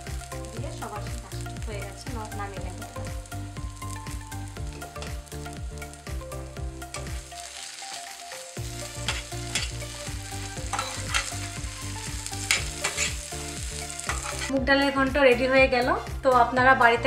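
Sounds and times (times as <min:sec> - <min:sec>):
oil sizzling: 0:00.0 - 0:15.1
metal spatula scraping pan: 0:09.0 - 0:09.8, 0:10.7 - 0:11.5, 0:12.4 - 0:13.2, 0:14.0 - 0:14.5.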